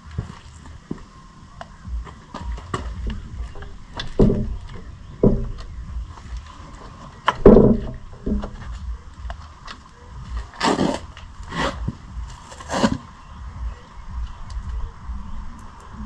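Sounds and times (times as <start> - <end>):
metal clunks and scrapes: 2.6 - 8.9.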